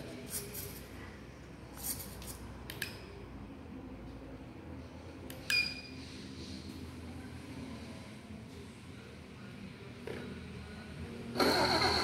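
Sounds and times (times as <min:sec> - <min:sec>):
short electronic beeps: 0:05.5 - 0:06.0.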